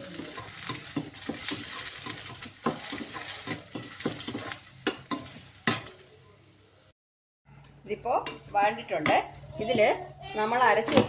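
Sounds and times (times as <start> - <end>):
metal spatula scraping pan: 0.0 - 6.0
food sizzling in oil: 0.0 - 6.9.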